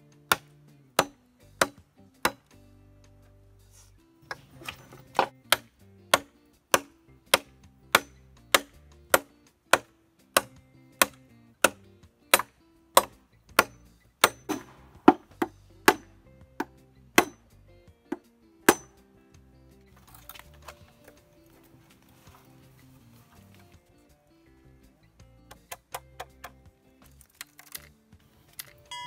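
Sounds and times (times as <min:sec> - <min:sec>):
background music: 0:00.0 - 0:29.0
machete chopping bamboo: 0:00.2 - 0:02.6, 0:04.3 - 0:17.5, 0:18.1 - 0:19.0, 0:20.0 - 0:21.1, 0:25.5 - 0:27.8.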